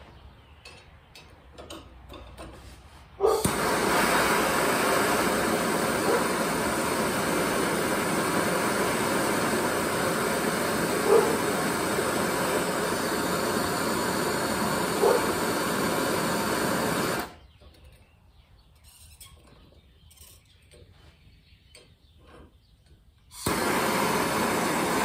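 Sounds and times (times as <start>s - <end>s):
torch flame hissing: 3.3s - 17.4s, 23.3s - 25.0s
torch lighting whoosh: 3.3s - 17.4s, 23.4s - 25.0s.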